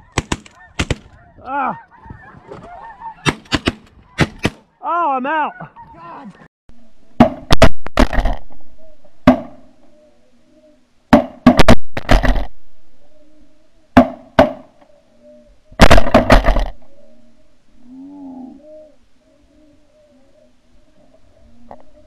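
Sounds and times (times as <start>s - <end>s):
snow geese calling: 0.0s - 6.5s, 14.6s - 15.8s, 16.4s - 22.0s
shotgun fire: 11.1s - 12.5s, 15.8s - 16.7s.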